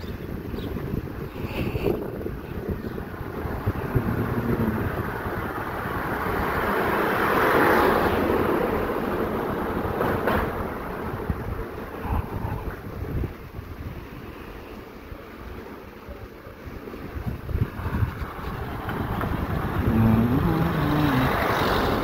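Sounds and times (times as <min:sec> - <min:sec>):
wind rumble on microphone: 0:00.0 - 0:14.6, 0:16.6 - 0:22.0
car passing: 0:03.1 - 0:13.0, 0:17.1 - 0:22.0.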